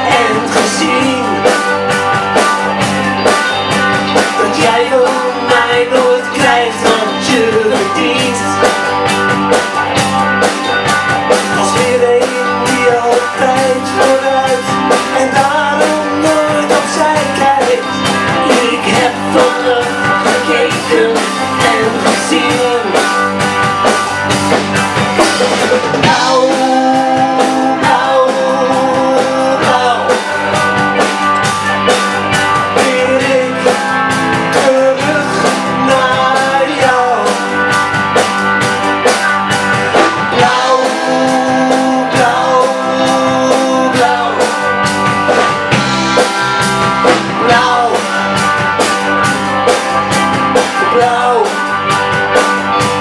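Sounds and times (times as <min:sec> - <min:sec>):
rock band playing: 0:00.0 - 0:53.0
woman singing: 0:04.4 - 0:08.6.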